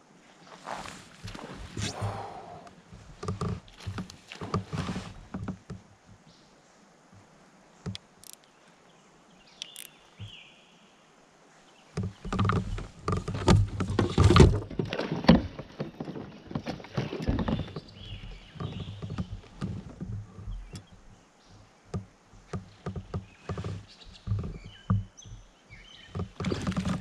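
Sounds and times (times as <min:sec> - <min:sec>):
small clicks: 0:07.8 - 0:08.5, 0:09.6 - 0:10.0.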